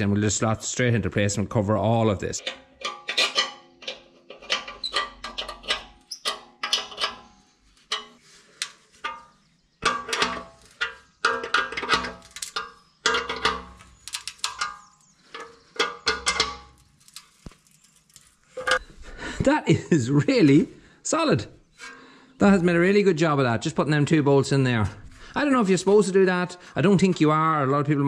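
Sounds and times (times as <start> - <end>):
spanner clinking on bolts: 2.4 - 17.2, 18.1 - 18.8.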